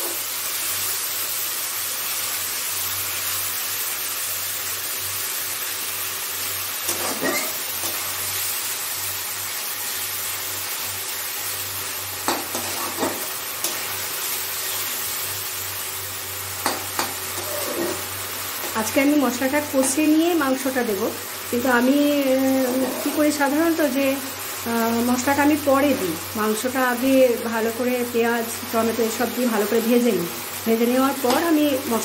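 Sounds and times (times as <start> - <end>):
paste sizzling in oil: 0.0 - 32.0
metal spatula scraping a pan: 6.8 - 8.2, 12.3 - 14.0, 16.6 - 18.8, 22.5 - 23.5.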